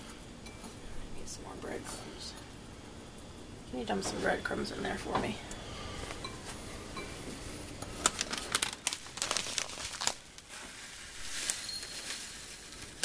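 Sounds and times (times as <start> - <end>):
plastic bag crinkling: 7.6 - 13.0.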